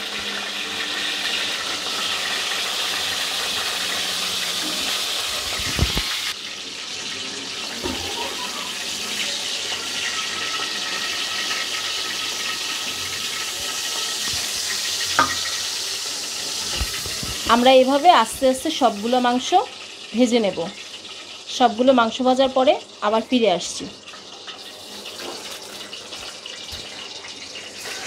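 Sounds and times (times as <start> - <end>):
chicken sizzling in oil: 0.0 - 28.0
wooden spatula knocking pan: 15.2 - 15.6.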